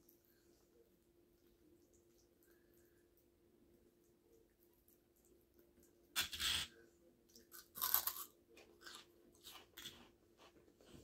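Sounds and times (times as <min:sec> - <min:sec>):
crunchy snack being chewed: 0:07.3 - 0:10.1.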